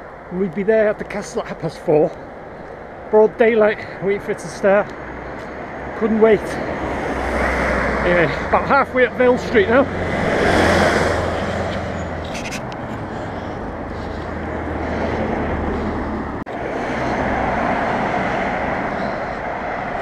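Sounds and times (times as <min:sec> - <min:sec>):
car driving past: 0:06.7 - 0:08.5, 0:09.6 - 0:12.3.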